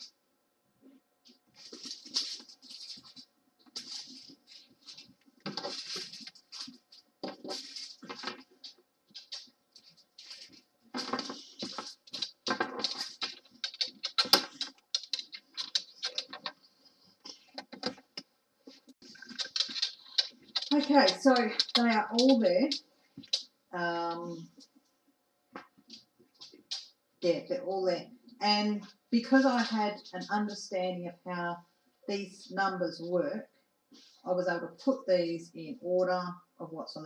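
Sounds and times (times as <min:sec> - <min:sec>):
plastic bags rustling: 0:01.5 - 0:18.1, 0:18.7 - 0:24.4.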